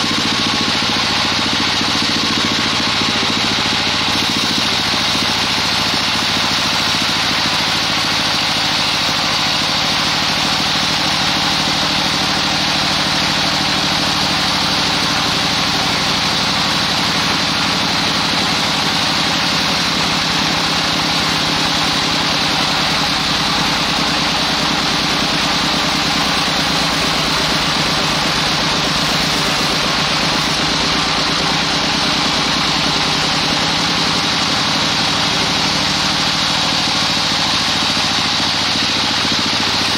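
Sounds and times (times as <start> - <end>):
band saw cutting log: 0.0 - 39.9.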